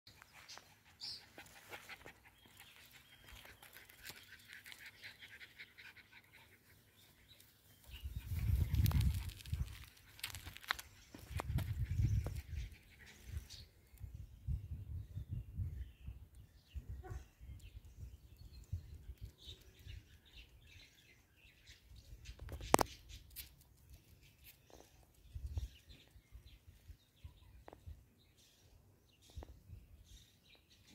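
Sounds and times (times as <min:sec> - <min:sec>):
small birds chirping: 0:00.1 - 0:30.9
puppy panting: 0:00.2 - 0:07.2
puppy chewing toy in grass: 0:08.2 - 0:12.1.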